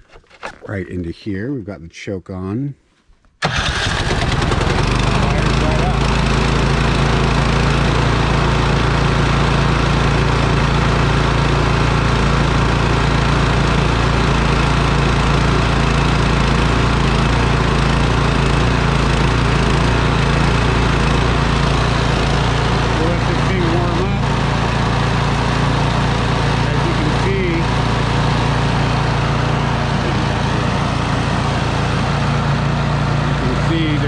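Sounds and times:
snowblower engine running: 0:03.4 - 0:34.0.

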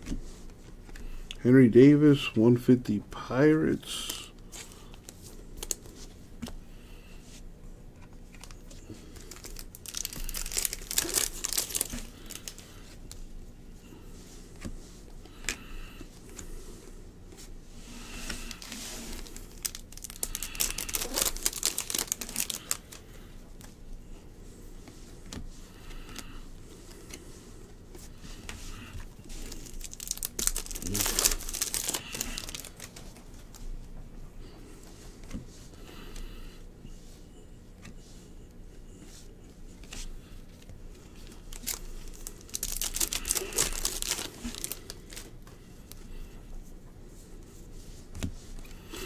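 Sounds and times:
trading cards rustling and sliding: 0:08.1 - 0:13.1, 0:17.3 - 0:23.8, 0:24.8 - 0:33.6, 0:41.3 - 0:45.3.

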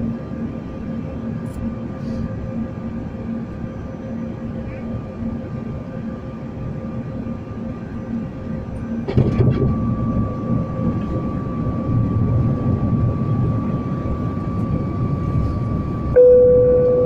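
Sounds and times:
airliner cabin engine and airflow rush: 0:00.0 - 0:17.0
thin constant whine: 0:00.0 - 0:17.0
loud steady tone: 0:08.8 - 0:17.0.

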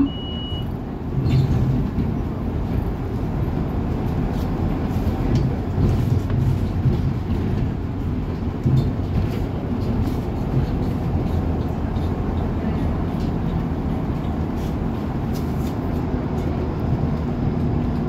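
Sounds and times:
bus engine and road rumble: 0:00.0 - 0:18.0
faint knocks and rattles: 0:05.2 - 0:14.4.

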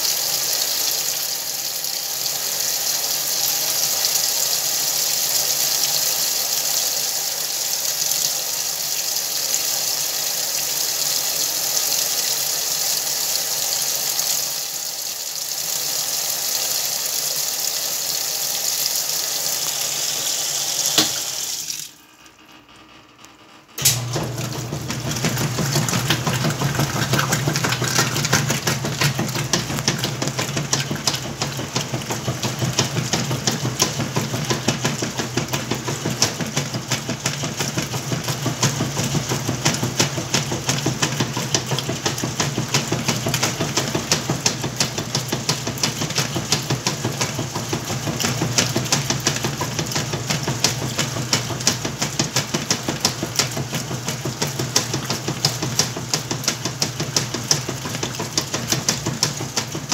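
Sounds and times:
water pouring into tub: 0:00.0 - 0:22.0, 0:24.0 - 0:59.9
washing machine motor hum: 0:00.0 - 0:59.9
agitator churning water: 0:23.8 - 0:59.9.

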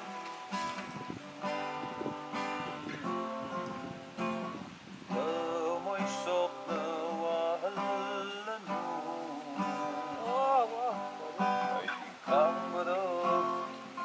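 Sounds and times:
acoustic guitar strumming: 0:00.0 - 0:14.0
person singing: 0:05.1 - 0:14.0.

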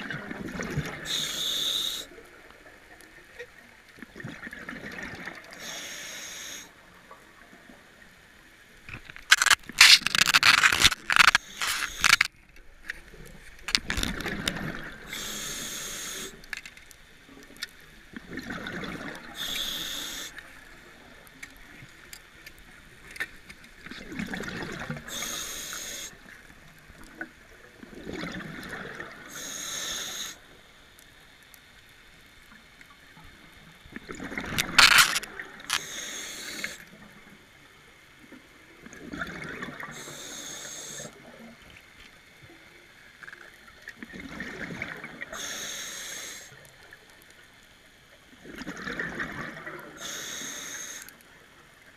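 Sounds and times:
regulator hissing inhalations: 0:01.1 - 0:02.2, 0:05.6 - 0:06.7, 0:15.1 - 0:16.4, 0:19.4 - 0:20.4, 0:25.1 - 0:26.2, 0:29.3 - 0:30.4, 0:35.7 - 0:36.8, 0:39.9 - 0:41.1, 0:45.4 - 0:46.6, 0:50.0 - 0:51.2
crackling burst of bubbles: 0:08.9 - 0:12.3, 0:13.7 - 0:16.4, 0:34.0 - 0:36.8.

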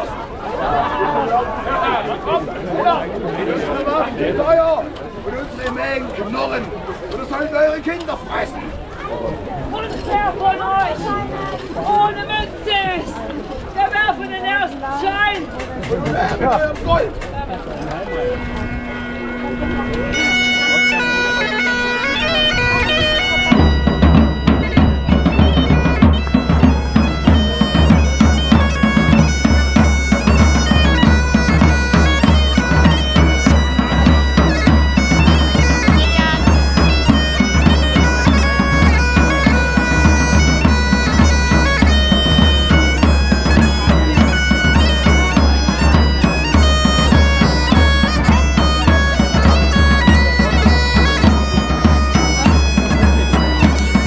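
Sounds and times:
bagpipe playing a tune: 0:18.0 - 0:54.0
large drums beating: 0:22.1 - 0:54.0.

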